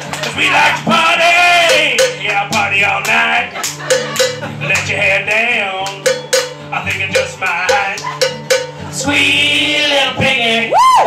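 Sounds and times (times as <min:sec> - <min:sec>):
strummed acoustic guitar: 0:00.0 - 0:10.7
man singing: 0:00.3 - 0:03.6, 0:04.4 - 0:11.0
sharp percussive hits: 0:00.8 - 0:09.4.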